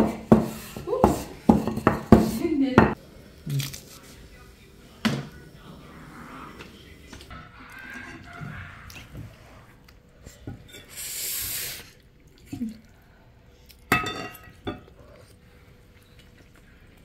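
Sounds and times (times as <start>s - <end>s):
spoon clinking on dishes: 13.9s - 14.9s.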